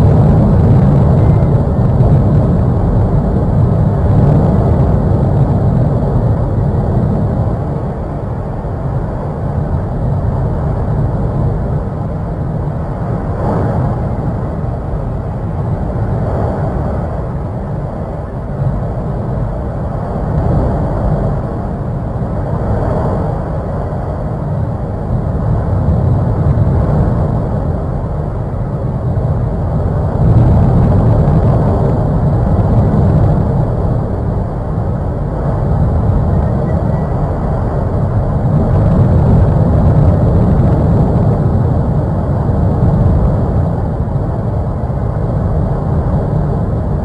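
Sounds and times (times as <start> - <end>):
deep rumbling roar: 0.0 - 7.8.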